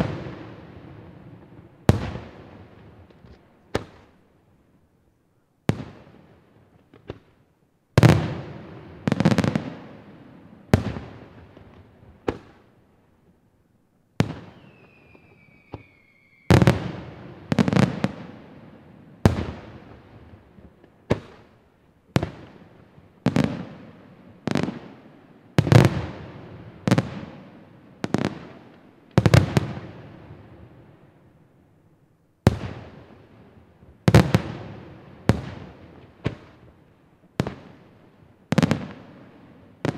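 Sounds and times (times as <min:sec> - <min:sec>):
high firework whistle: 0:14.4 - 0:16.9.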